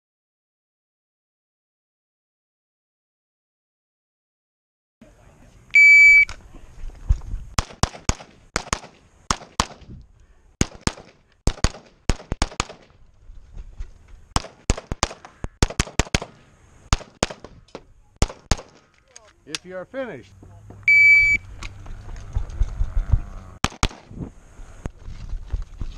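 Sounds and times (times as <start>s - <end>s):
shot timer beep: 5.8s - 6.3s, 20.9s - 21.4s
pistol firing rapid shots: 7.6s - 9.8s, 10.6s - 12.9s, 14.4s - 17.5s, 18.2s - 18.8s, 23.6s - 24.1s.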